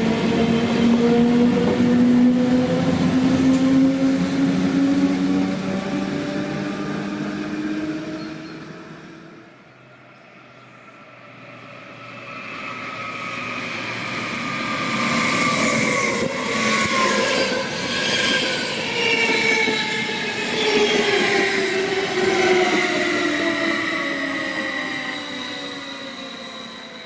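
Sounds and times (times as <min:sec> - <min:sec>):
train wheels rumbling on rails: 0:00.0 - 0:09.4.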